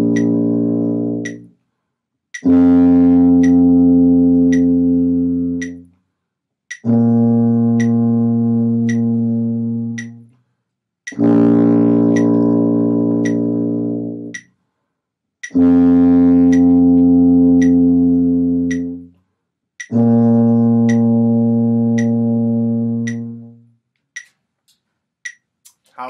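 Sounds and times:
tuba playing long low notes: 0.0s - 1.5s, 2.4s - 5.9s, 6.8s - 10.3s, 11.1s - 14.4s, 15.5s - 19.1s, 19.9s - 23.7s
steady metronome tick: 0.0s - 14.6s, 15.4s - 26.0s.

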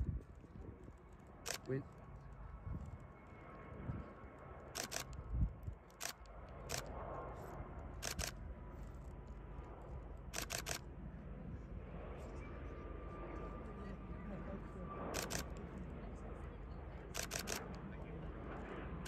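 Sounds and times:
camera shutter clicks: 1.5s - 1.7s, 4.8s - 5.2s, 5.9s - 6.9s, 8.0s - 8.4s, 10.4s - 10.8s, 15.2s - 15.6s, 17.2s - 17.7s.

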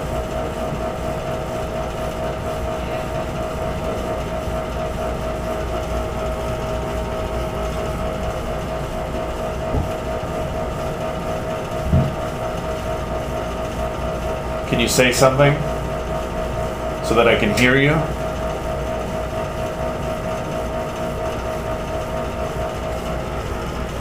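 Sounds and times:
machinery humming drone: 0.0s - 24.0s
low thump: 9.7s - 10.0s, 11.8s - 12.2s.

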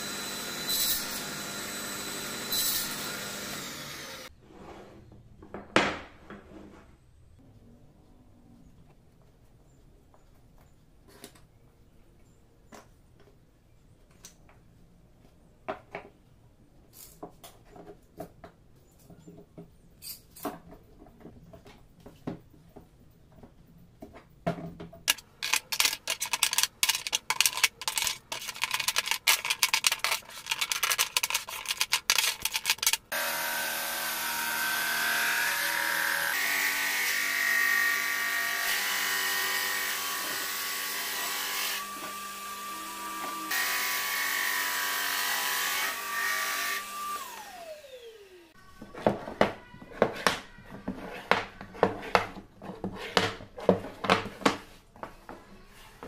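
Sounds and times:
thickness planer motor running: 1.2s - 4.3s, 32.1s - 36.4s.

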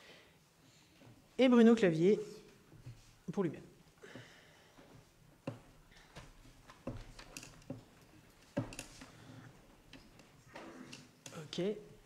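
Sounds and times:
faint knocks and clicks: 4.8s - 11.4s.

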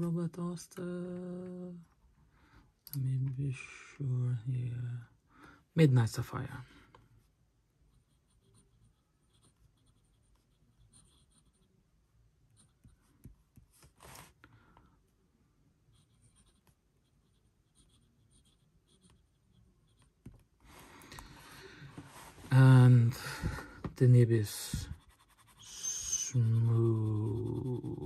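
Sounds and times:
pen nib scratching on paper: 7.9s - 11.8s, 15.9s - 20.5s, 24.7s - 28.0s.

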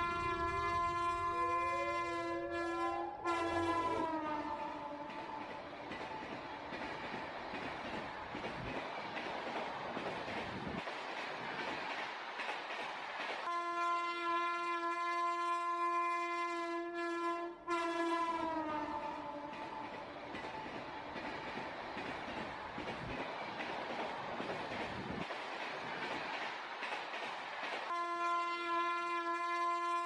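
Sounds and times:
train horn: 0.0s - 5.6s, 13.4s - 20.0s, 27.9s - 30.0s.

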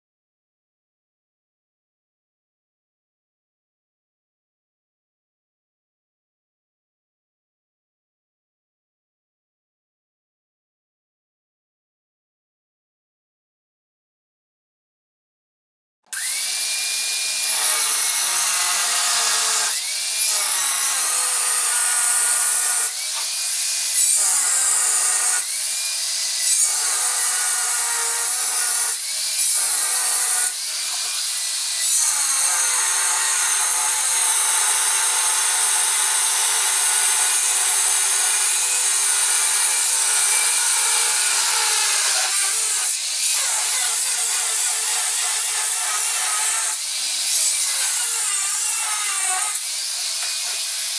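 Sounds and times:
angle grinder cutting screed: 16.1s - 50.9s.

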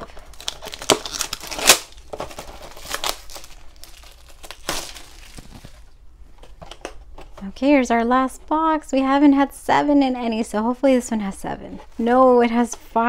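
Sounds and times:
packaging ripping: 0.0s - 5.9s
packaging rustling: 0.0s - 7.4s.

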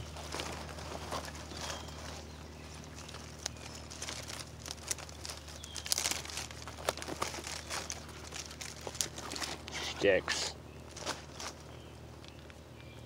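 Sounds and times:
dry tinder crinkling: 0.0s - 13.0s.

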